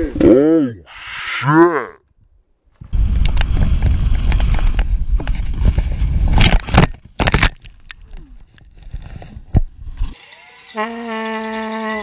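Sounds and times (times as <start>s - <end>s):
wind rush on camera: 2.2s - 10.2s.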